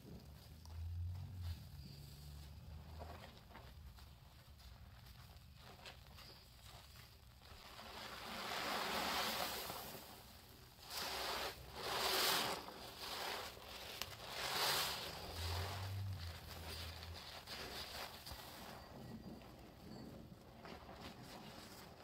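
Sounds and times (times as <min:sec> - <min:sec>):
sponge squelching in foam: 0:07.3 - 0:18.6.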